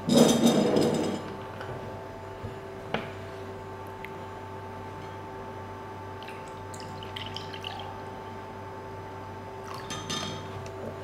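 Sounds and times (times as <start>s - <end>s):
steady low hum: 0.0s - 11.0s
juice pouring into a glass: 6.2s - 8.0s.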